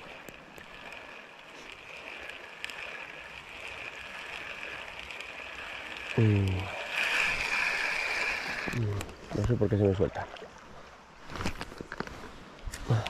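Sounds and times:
river water running: 0.0 - 13.0.

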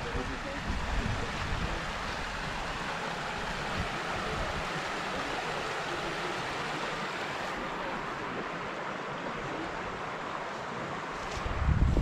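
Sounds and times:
wind rushing on microphone: 0.0 - 2.7, 11.0 - 12.0.

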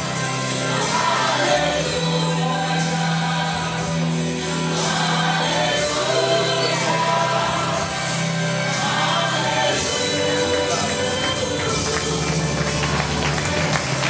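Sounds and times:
person singing: 4.7 - 13.7.

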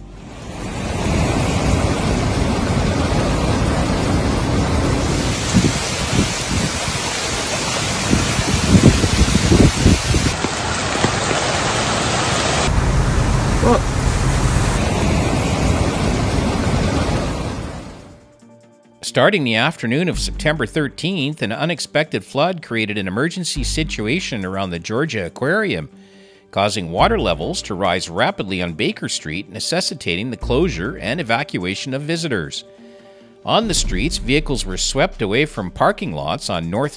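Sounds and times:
heavy rain: 0.2 - 18.2
rushing floodwater: 0.2 - 18.2.

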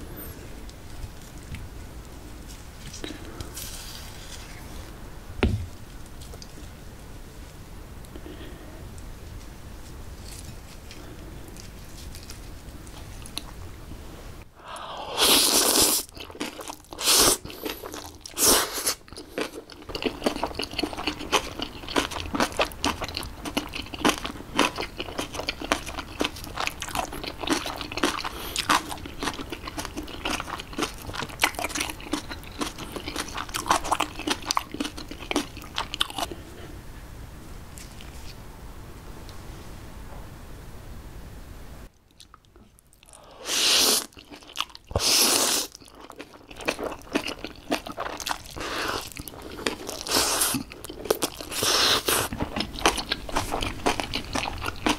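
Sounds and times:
crunchy chewing: 9.3 - 13.8, 14.8 - 36.4, 42.1 - 54.9
slurping noodles: 14.9 - 16.1, 16.9 - 19.0, 43.1 - 44.2, 44.9 - 45.8, 48.6 - 50.7, 51.4 - 54.9.

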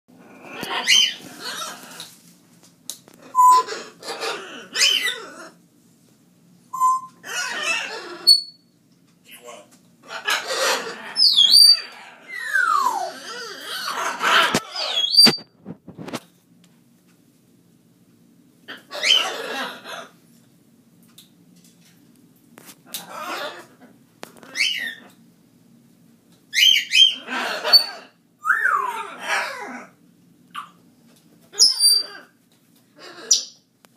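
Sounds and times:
animal rasping cries: 0.3 - 2.1, 3.2 - 5.6, 7.2 - 8.5, 10.0 - 15.2, 18.7 - 20.2, 23.0 - 25.1, 26.6 - 30.0
pet animal calling: 0.4 - 2.1
animal high chirps: 3.4 - 3.7, 31.6 - 32.2.

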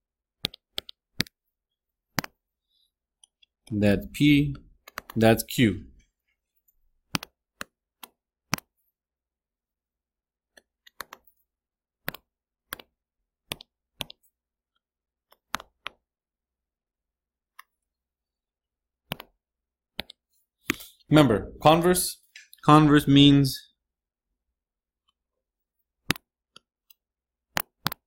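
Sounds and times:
sharp mouse clicks: 7.1 - 8.7, 19.1 - 19.3.

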